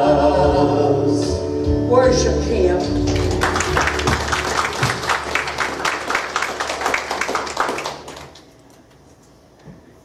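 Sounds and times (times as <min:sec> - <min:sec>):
congregation applauding: 0:03.1 - 0:08.7.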